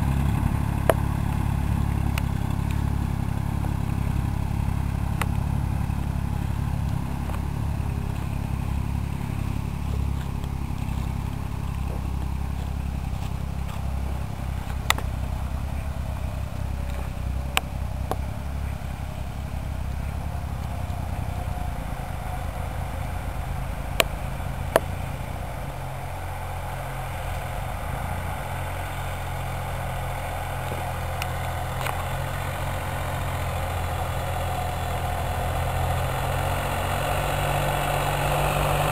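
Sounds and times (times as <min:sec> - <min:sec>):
tractor engines droning: 0:00.0 - 0:38.9.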